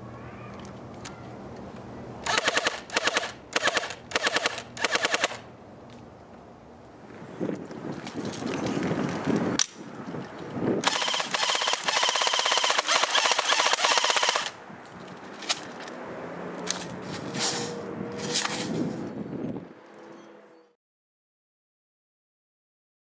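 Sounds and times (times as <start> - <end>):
airsoft gun full-auto burst: 2.2 - 5.4, 10.8 - 14.6.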